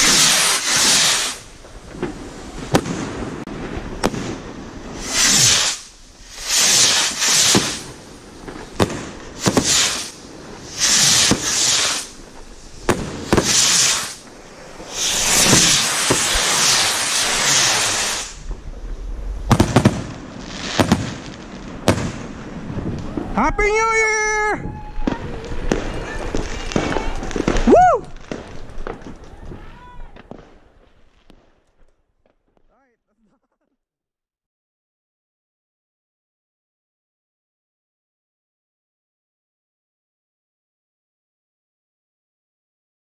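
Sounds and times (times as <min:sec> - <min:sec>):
firework bursts in the air: 0:00.0 - 0:31.5
firework bangs: 0:00.0 - 0:32.8
firework rockets launching with hiss: 0:00.0 - 0:32.9.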